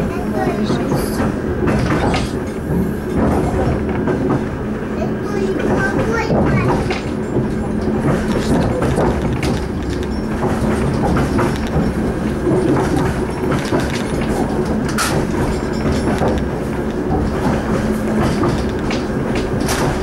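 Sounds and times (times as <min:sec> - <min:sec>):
train wheels rumbling on rails: 0:00.0 - 0:20.0
wheels clicking over track: 0:00.0 - 0:20.0.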